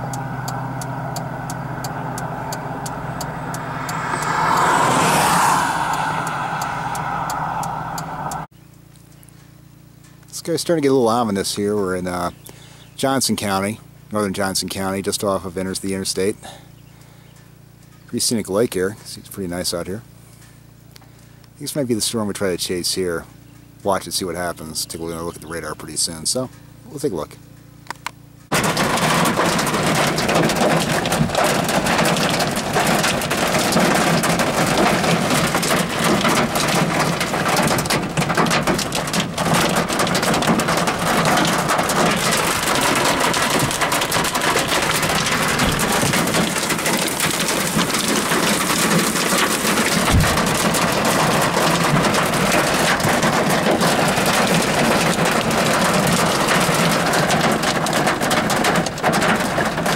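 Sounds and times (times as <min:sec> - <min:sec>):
hail and rain on vehicle: 0:28.5 - 0:59.9.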